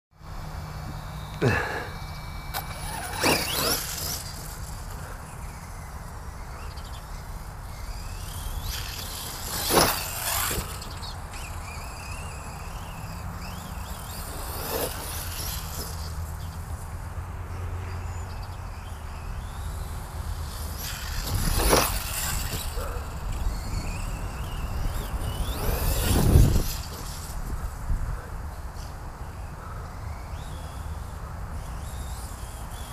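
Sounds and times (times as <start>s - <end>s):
electric rc car whirring: 0.2s - 32.9s.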